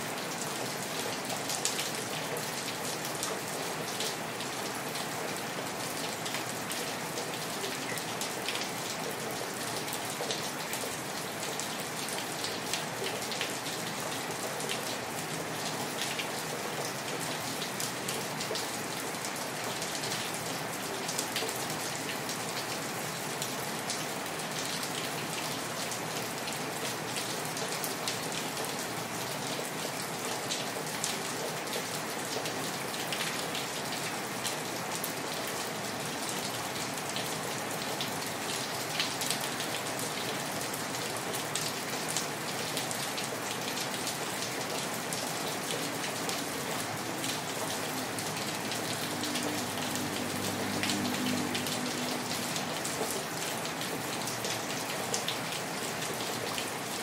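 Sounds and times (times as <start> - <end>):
steady rain falling: 0.0 - 57.0.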